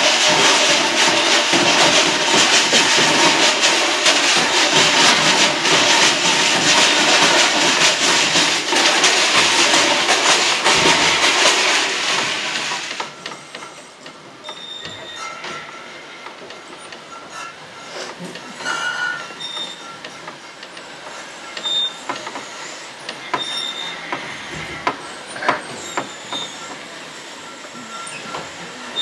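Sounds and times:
rattling and hissing clatter: 0.0s - 29.0s.

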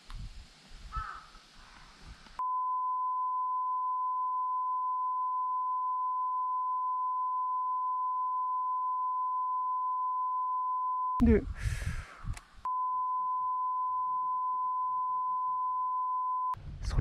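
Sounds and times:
censor bleep tone: 2.4s - 11.2s, 12.7s - 16.6s.

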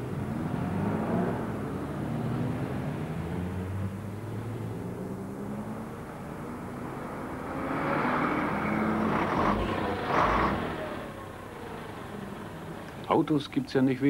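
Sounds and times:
car engines in slow traffic: 0.0s - 14.0s
exhaust rush: 2.6s - 13.6s.

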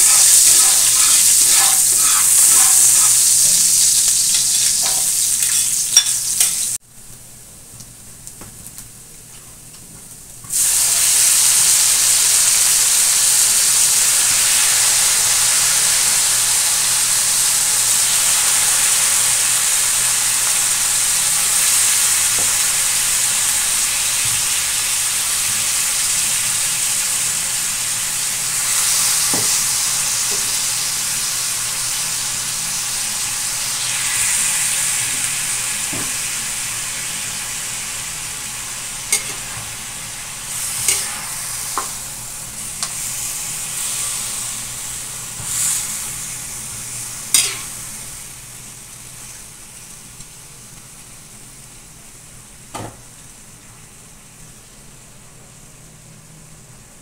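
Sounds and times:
chicken sizzling in a wok: 0.0s - 6.8s, 10.1s - 55.0s
metal spatula scraping a wok: 40.6s - 41.4s, 47.3s - 47.8s.

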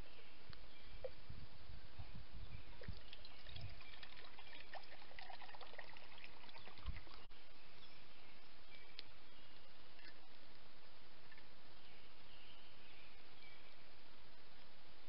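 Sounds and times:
water trickling into metal cup: 2.8s - 7.3s.

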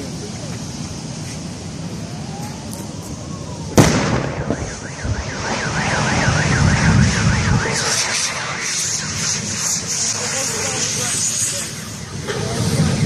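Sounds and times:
gas cylinder explosion bang: 3.8s - 9.6s
car alarm warbling: 4.3s - 10.3s
hiss: 7.7s - 13.0s.

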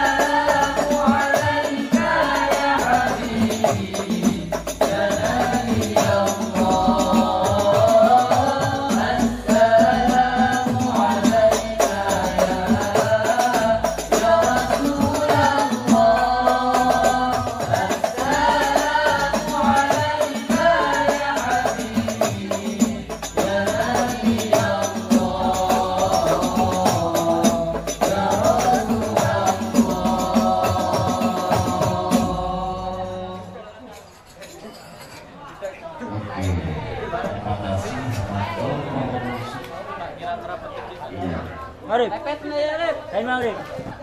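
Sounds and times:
fast frame drum playing: 0.0s - 33.1s
young men singing together: 0.0s - 33.8s.

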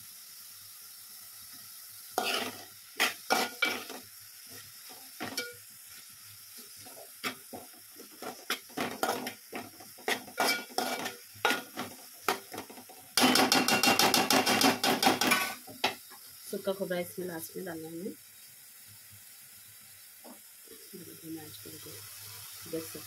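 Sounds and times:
faint sizzle: 0.0s - 23.0s
metal spoon scraping a pan: 2.2s - 16.0s.

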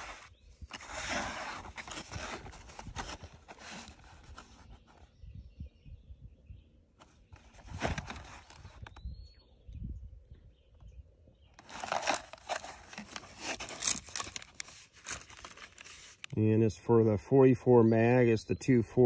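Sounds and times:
cardboard box rustling and scraping: 0.0s - 5.1s, 7.0s - 8.9s, 11.6s - 16.3s.

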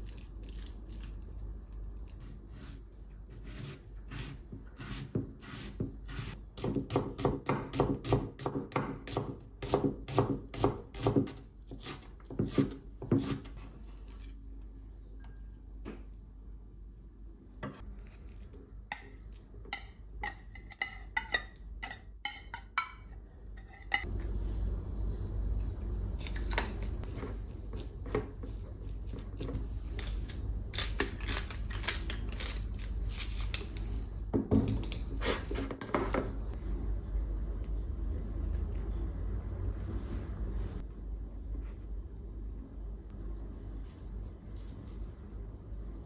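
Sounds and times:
spoon stirring in bowl: 17.8s - 24.1s.

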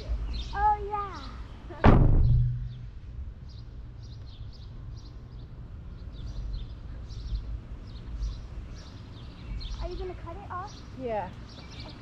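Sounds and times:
small birds chirping: 0.0s - 12.0s
steady low rumble: 1.5s - 10.3s.

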